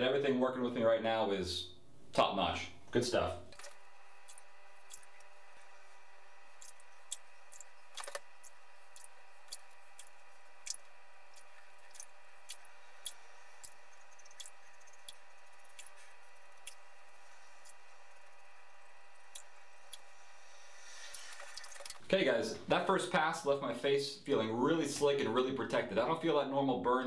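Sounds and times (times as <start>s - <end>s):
razor scraping stubble: 3.5s - 22.0s.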